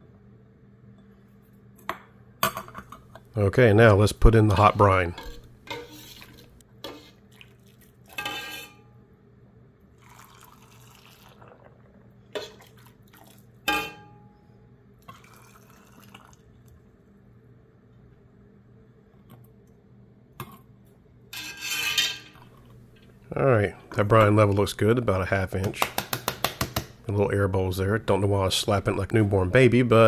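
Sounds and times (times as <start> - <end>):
liquid pouring into jar: 10.0 - 11.8, 15.0 - 16.7.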